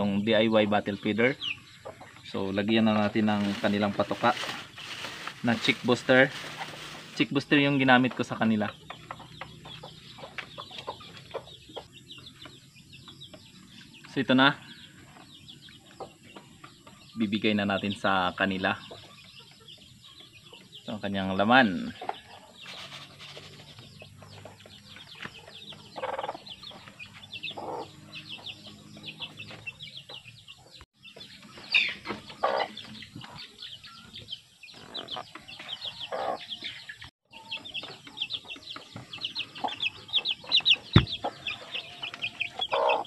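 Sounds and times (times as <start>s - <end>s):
chicks peeping: 0.0s - 43.0s
low clucking calls: 34.7s - 43.0s.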